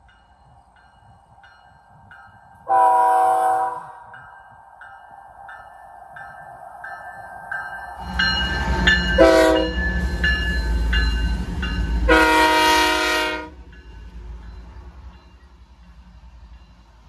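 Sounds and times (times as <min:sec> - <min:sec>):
locomotive horn blasts: 0:02.6 - 0:04.1, 0:09.2 - 0:09.8, 0:12.1 - 0:13.7
crossing bell dinging: 0:04.0 - 0:17.0.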